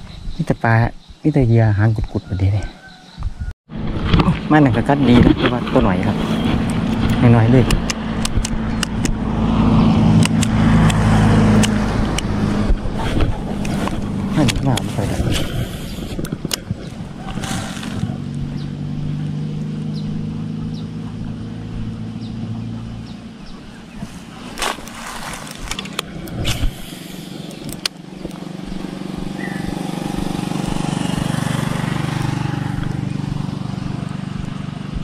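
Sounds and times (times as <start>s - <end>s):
vehicles passing on road: 2.2s - 35.0s
sharp clicks: 6.6s - 9.2s, 10.2s - 12.8s, 25.5s - 31.2s.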